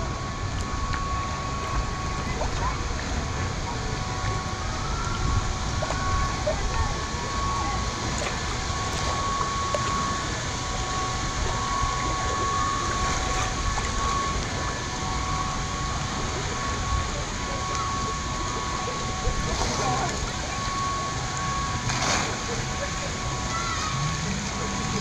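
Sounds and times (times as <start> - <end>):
faint voices: 0.0 - 25.0
thin high tone: 0.0 - 25.0
water current rushing and lapping: 0.0 - 25.0.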